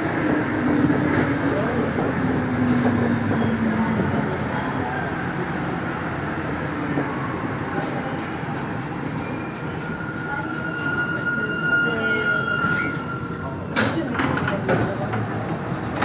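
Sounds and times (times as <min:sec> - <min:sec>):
train running and braking: 0:00.0 - 0:16.0
high brake squeal: 0:08.6 - 0:13.7.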